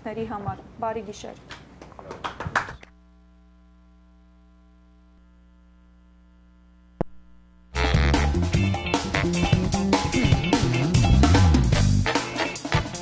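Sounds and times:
electrical mains hum: 0:00.0 - 0:08.1
loud music with drums: 0:07.8 - 0:13.0.

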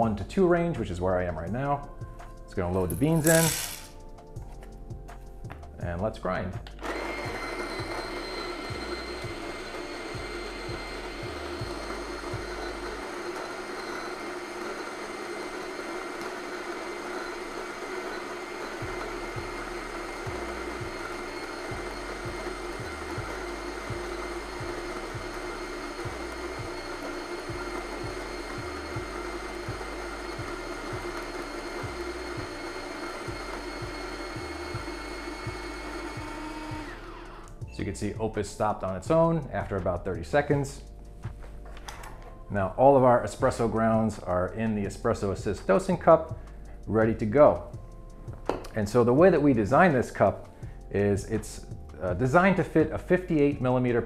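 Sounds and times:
coffee grinder motor whining: 0:02.8 - 0:03.9, 0:06.6 - 0:37.6.

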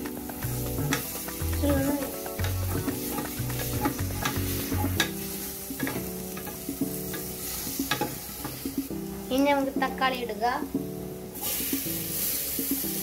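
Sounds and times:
spatula knocking and scraping pot: 0:00.0 - 0:08.8
onions sizzling in oil: 0:00.0 - 0:10.4, 0:11.0 - 0:13.0.

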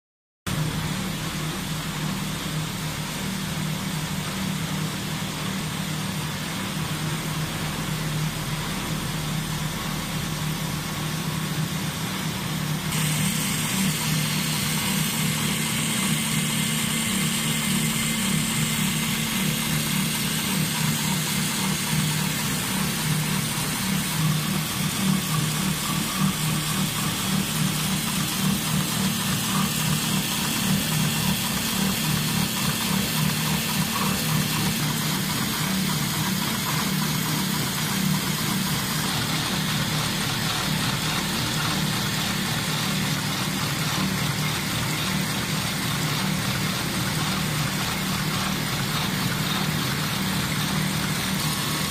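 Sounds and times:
sewing machines humming: 0:10.8 - 0:51.9.

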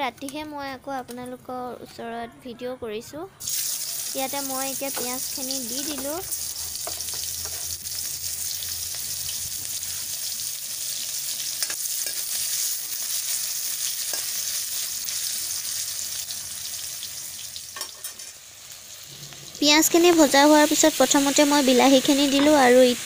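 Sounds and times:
onions sizzling in hot oil: 0:03.4 - 0:23.0
spatula stirring: 0:05.7 - 0:07.9.

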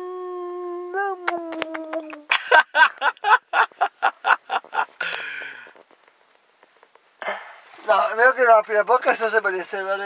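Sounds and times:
man breathy exhale: 0:05.0 - 0:05.8.

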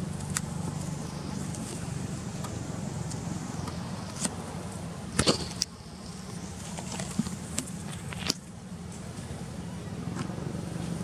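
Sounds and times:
low engine drone: 0:00.0 - 0:11.0.

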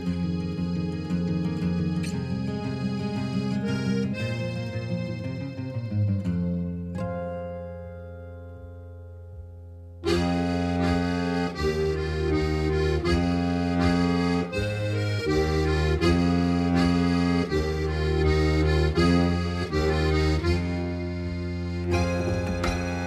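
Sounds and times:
accordion chords: 0:00.0 - 0:23.0
steady low bass: 0:08.5 - 0:23.0.

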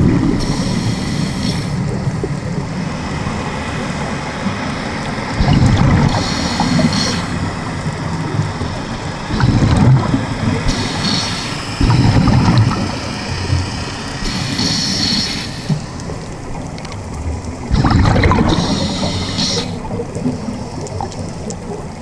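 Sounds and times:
hissing regulator inhalations: 0:00.4 - 0:01.9, 0:06.0 - 0:07.5, 0:10.5 - 0:16.2, 0:17.8 - 0:19.9
gurgling exhaled bubbles: 0:05.0 - 0:22.0.

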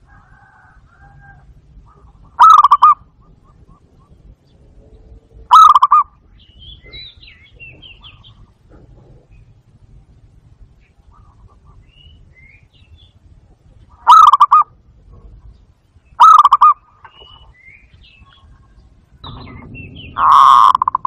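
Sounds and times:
dove quavering coos: 0:00.0 - 0:10.2, 0:10.8 - 0:12.2, 0:13.8 - 0:15.6, 0:16.2 - 0:17.5, 0:18.1 - 0:21.0
small birds chirping: 0:01.8 - 0:21.0
rush of noise: 0:18.1 - 0:21.0.

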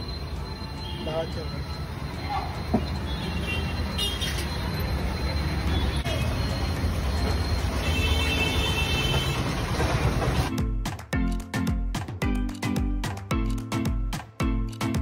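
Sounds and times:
music with a beat: 0:10.5 - 0:15.0.

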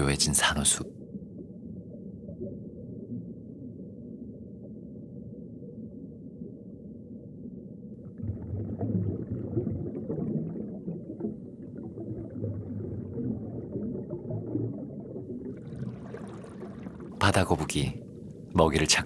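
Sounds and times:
underwater rumbling wash: 0:01.0 - 0:18.6
underwater crackling: 0:08.0 - 0:19.0.

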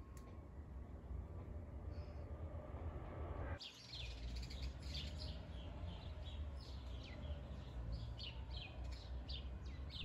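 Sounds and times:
songbirds chirping: 0:03.6 - 0:10.0.

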